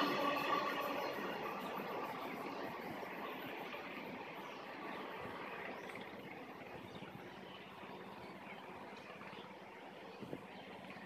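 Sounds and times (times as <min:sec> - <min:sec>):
freight train rumble: 0:00.0 - 0:08.9.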